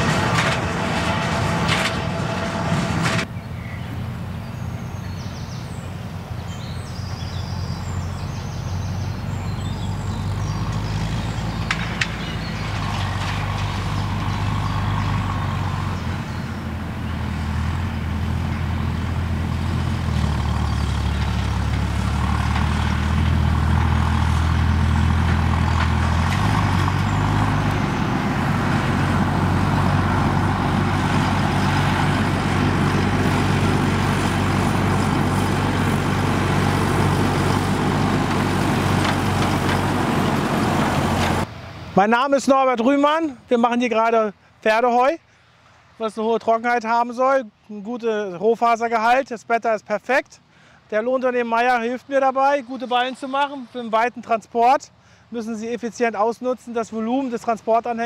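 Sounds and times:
tractor engine running: 0:00.0 - 0:42.1.

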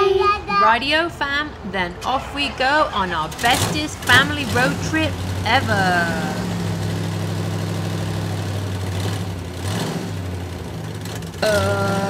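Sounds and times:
low engine hum: 0:03.2 - 0:12.0.

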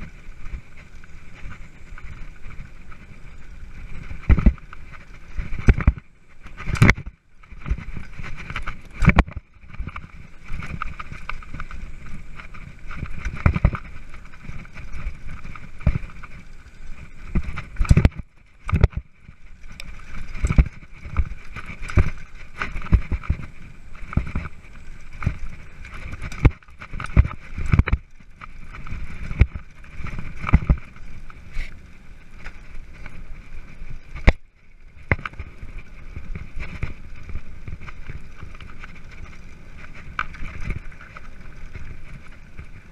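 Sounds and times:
bike knocking over bumps: 0:00.0 - 0:31.7
mountain bike rattling on dirt trail: 0:00.0 - 0:42.9.

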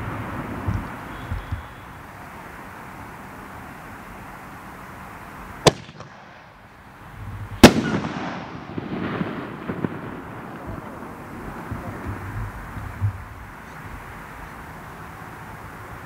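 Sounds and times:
firework pops and crackle: 0:05.7 - 0:06.7, 0:07.6 - 0:13.3
firework shell bang: 0:05.7 - 0:06.7, 0:07.6 - 0:12.4
firework launch thump: 0:07.6 - 0:13.2.

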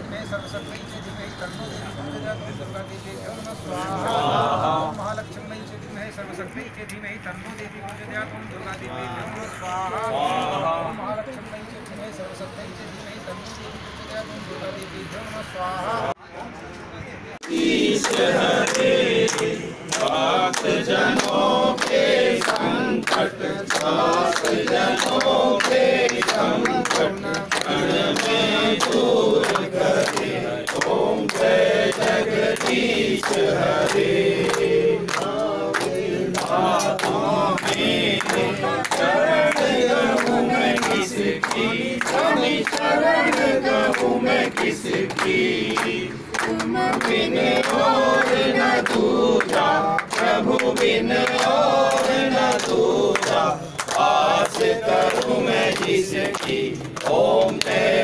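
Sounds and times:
crowd chanting in unison: 0:03.6 - 0:05.2, 0:08.9 - 0:11.2, 0:17.4 - 0:58.0
hand clapping: 0:17.4 - 0:58.0.

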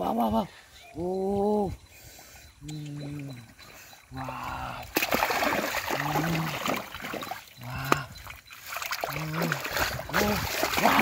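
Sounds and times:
hands squelching through muddy water: 0:03.8 - 0:11.0.

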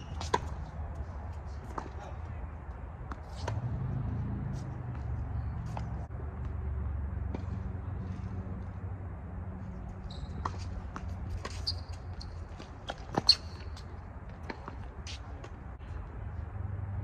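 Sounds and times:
sneakers squeaking on court: 0:00.0 - 0:01.0, 0:09.9 - 0:15.4
tennis ball bounces: 0:00.0 - 0:02.0, 0:03.0 - 0:06.6, 0:07.2 - 0:07.8, 0:10.3 - 0:15.7.

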